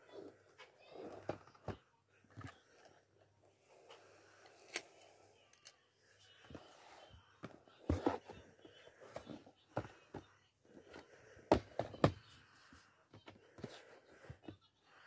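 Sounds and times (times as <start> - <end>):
cardboard boxes knocking and clicking: 11.5 - 12.2.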